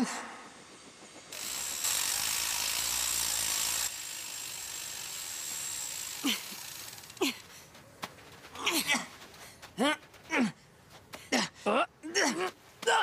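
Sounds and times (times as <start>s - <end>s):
motorised rope winch whirring: 1.3s - 7.5s.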